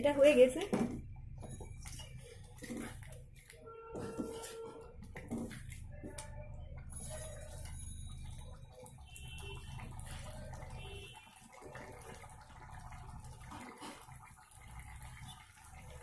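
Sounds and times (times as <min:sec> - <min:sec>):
thick dal bubbling: 0:00.0 - 0:16.0
wooden spatula stirring: 0:00.3 - 0:08.6.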